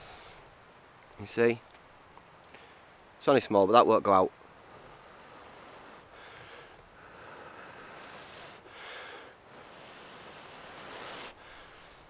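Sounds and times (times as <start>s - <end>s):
soft breaths blown on ember: 0.0s - 0.7s, 2.4s - 3.2s, 4.4s - 12.0s.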